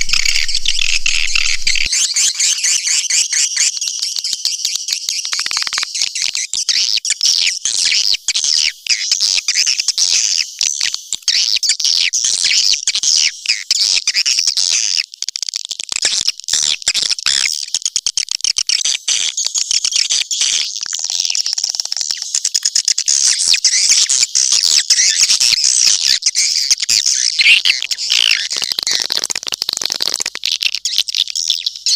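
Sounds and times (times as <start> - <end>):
swiftlets twittering and chirping: 0.0 - 1.9.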